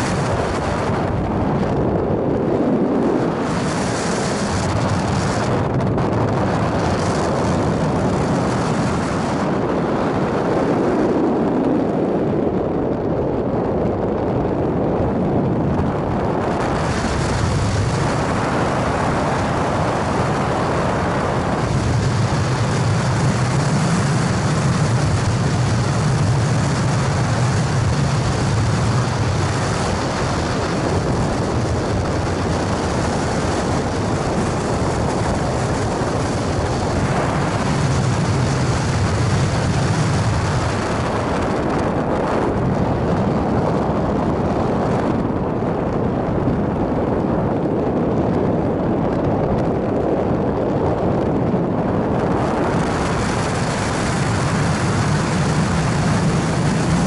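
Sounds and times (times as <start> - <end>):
wash of waves: 0.0 - 1.5, 2.4 - 9.5
wind buffeting microphone: 0.0 - 57.0.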